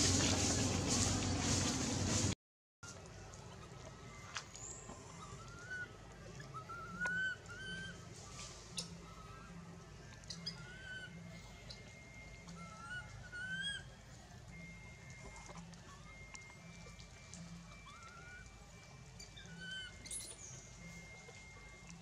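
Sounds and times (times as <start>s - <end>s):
rustling in dry leaves: 0.0s - 10.1s
monkey cooing calls: 4.9s - 15.5s, 17.6s - 21.8s.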